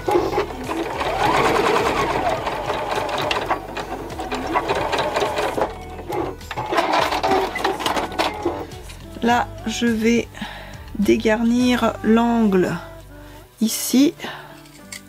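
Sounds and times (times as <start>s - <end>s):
sewing machine stitching: 0.0s - 9.0s.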